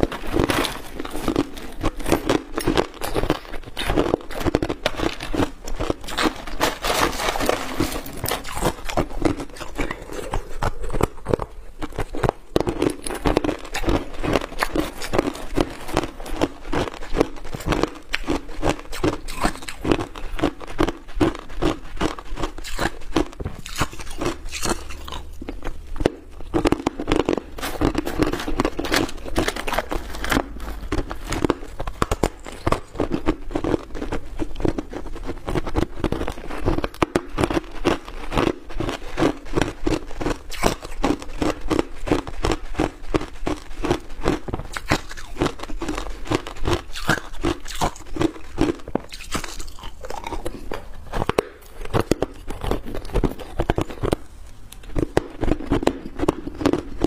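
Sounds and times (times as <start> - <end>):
ice chunks crunched in mouth: 0.0 - 57.0.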